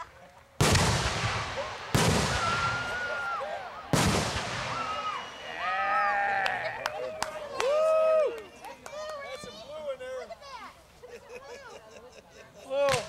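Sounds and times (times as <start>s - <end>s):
firework shells booming: 0.6s - 5.5s
echoing rumble: 0.6s - 5.6s.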